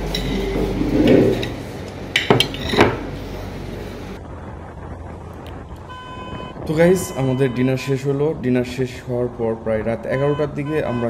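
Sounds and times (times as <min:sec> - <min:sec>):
plates and cutlery clinking: 0:00.0 - 0:03.2
dull low steady noise: 0:00.0 - 0:11.0.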